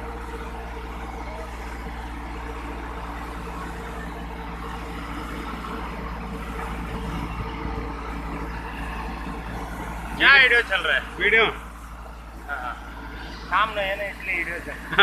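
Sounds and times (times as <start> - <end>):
diesel crane engine running: 0.0 - 15.0.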